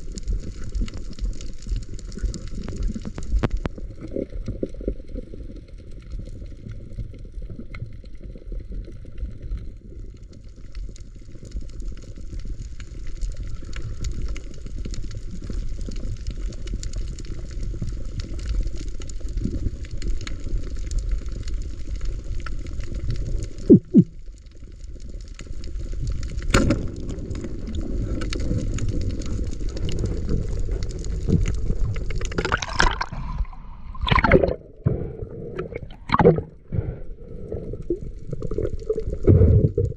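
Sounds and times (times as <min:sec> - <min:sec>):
underwater rumble of water: 0:00.0 - 0:39.9
water splashing: 0:23.7 - 0:24.2, 0:31.1 - 0:39.9.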